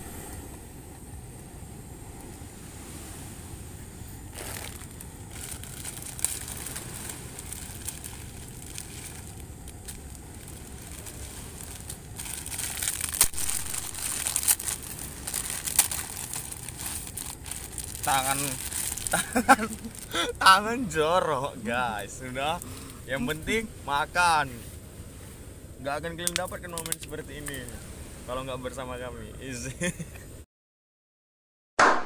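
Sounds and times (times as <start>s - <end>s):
low background noise: 0.0s - 30.4s
plastic sachets crinkling: 4.3s - 20.4s.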